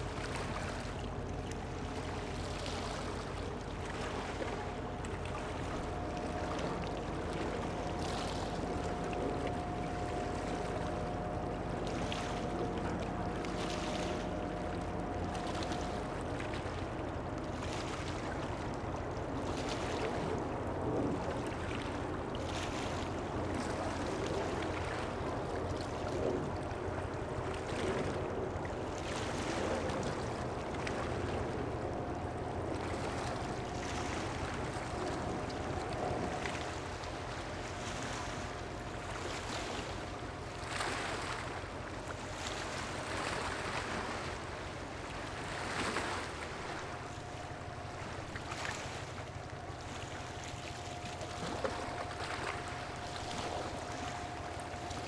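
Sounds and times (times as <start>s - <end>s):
faint droning tone: 0.0s - 55.0s
ship engine low hum: 0.0s - 55.0s
water washing and splashing: 45.5s - 55.0s.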